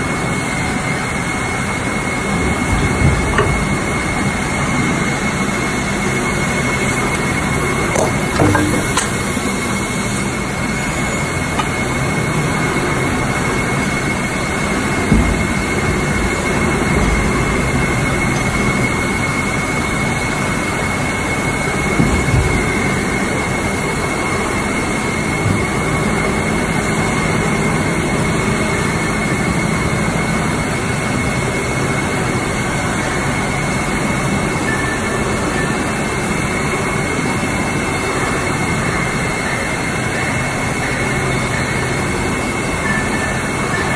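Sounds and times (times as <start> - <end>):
machine drone: 0.0 - 43.9
short machine knocks: 3.0 - 4.0, 7.9 - 9.2.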